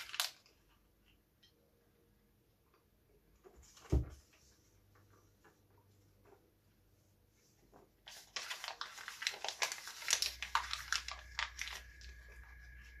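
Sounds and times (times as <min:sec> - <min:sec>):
paper crinkling and tearing: 0:00.0 - 0:00.6, 0:08.0 - 0:13.0
faint steady hum and whine: 0:09.8 - 0:13.0.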